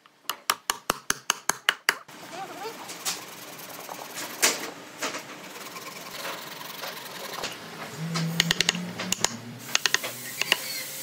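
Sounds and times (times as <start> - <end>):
tools scraping wood: 2.8 - 10.8.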